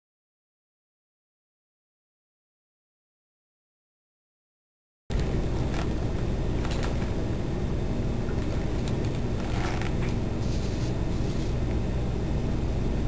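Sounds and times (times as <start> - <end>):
faint clicks and rustles: 5.1 - 7.2, 8.3 - 11.8
steady low rumble: 5.1 - 13.0.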